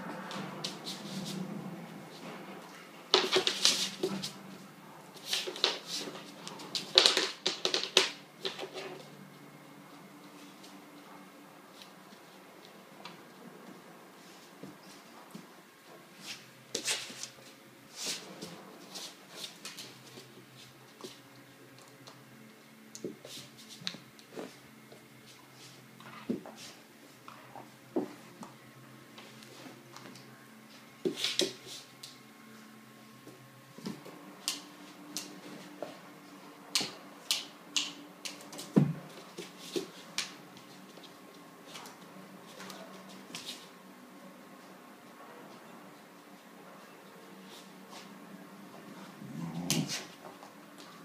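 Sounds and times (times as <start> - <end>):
puppy scrabbling at toys: 3.1 - 4.4.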